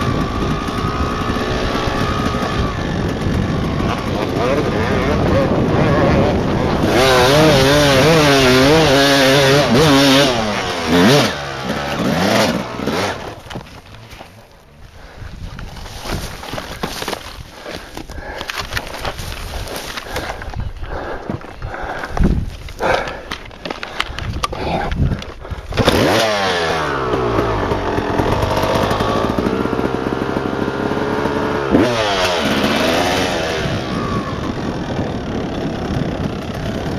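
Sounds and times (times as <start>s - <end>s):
dirt bike engine revving: 0.0s - 20.5s, 25.6s - 36.9s.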